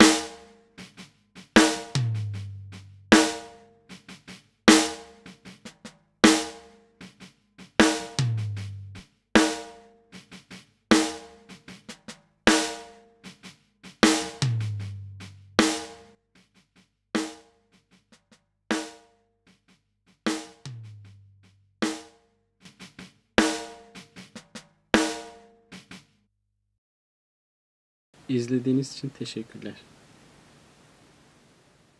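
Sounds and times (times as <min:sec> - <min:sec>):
snare drum hits: 0:00.0 - 0:01.0, 0:01.6 - 0:07.2, 0:07.8 - 0:16.1.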